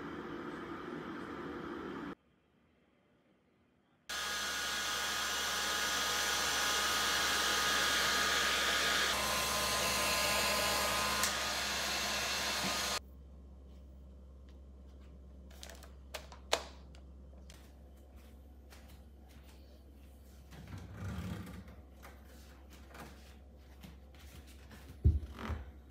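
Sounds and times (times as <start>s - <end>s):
hair dryer running: 4.1s - 13.0s.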